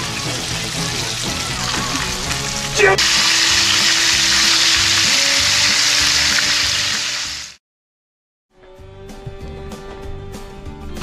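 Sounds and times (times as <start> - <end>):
fish fillets sizzling in a pan: 0.0 - 7.6.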